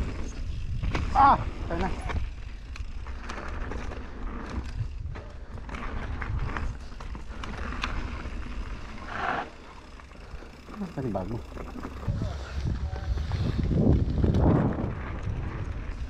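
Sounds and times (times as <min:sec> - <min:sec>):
bike clattering over bumps: 0:00.0 - 0:16.0
tyres on loose dirt: 0:00.0 - 0:16.0
wind on microphone: 0:12.0 - 0:16.0.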